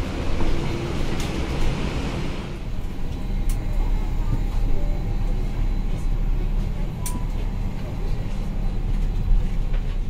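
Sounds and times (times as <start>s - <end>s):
airliner low rumble and hiss: 0.0s - 10.0s.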